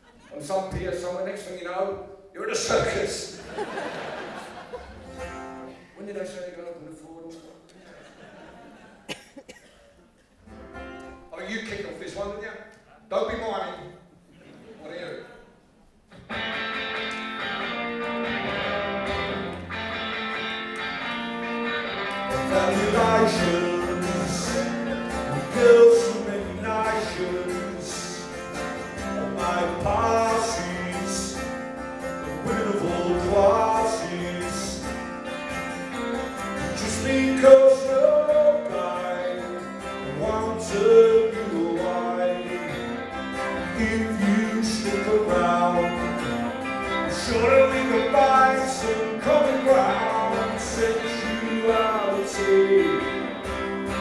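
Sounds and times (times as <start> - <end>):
strummed acoustic guitar: 4.0 - 5.8, 16.1 - 54.0
electric guitar: 16.1 - 54.0
man singing: 22.3 - 35.0, 36.6 - 54.0.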